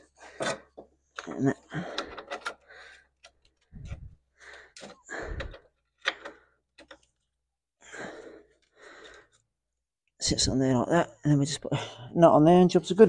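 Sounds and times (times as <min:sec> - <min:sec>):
small metal and plastic clicks: 0:04.7 - 0:07.2.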